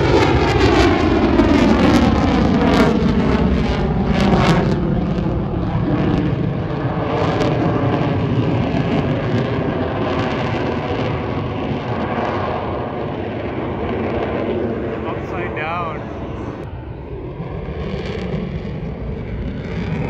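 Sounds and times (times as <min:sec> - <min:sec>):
fighter jet flying overhead: 0:00.0 - 0:20.0.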